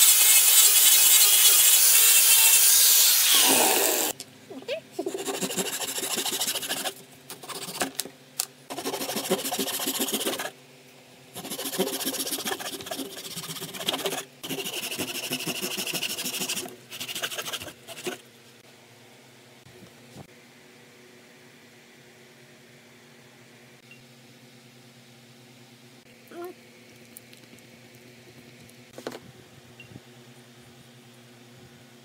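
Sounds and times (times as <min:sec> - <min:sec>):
hand saw cutting wood: 0:05.1 - 0:07.9, 0:08.7 - 0:10.5, 0:11.4 - 0:18.2.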